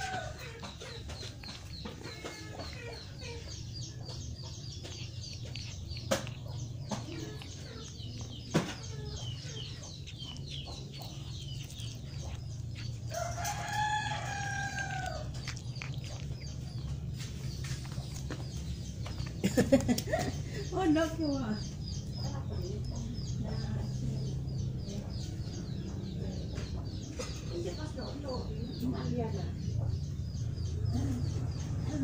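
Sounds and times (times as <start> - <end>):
rooster crowing: 0.0 - 0.4, 13.1 - 15.3.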